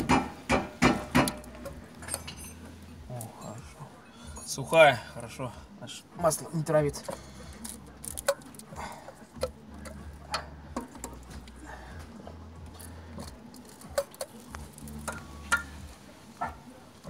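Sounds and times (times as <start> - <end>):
plastic ignition coils clicking: 7.0 - 8.7, 12.7 - 15.8.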